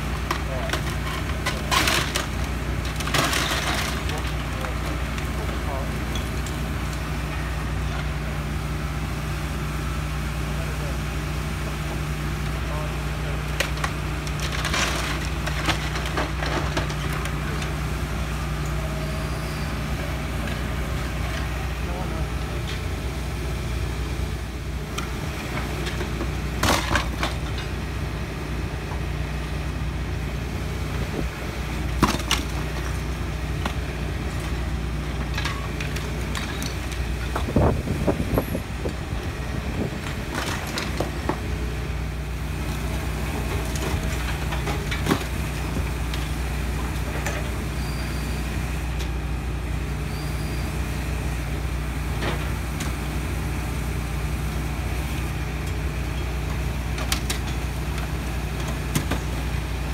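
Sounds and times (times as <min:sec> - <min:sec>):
breaking timber cracks and crashes: 0:00.0 - 0:07.1, 0:13.2 - 0:17.8, 0:25.4 - 0:27.8, 0:31.8 - 0:38.2
excavator diesel engine running: 0:00.0 - 0:59.9
falling debris: 0:00.4 - 0:06.6, 0:13.5 - 0:17.8.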